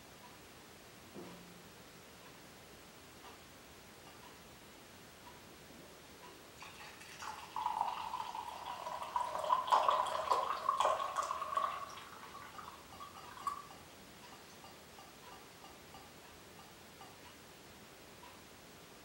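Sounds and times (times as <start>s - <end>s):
tea pouring into cup: 6.6s - 13.7s
tea dripping: 6.6s - 14.8s.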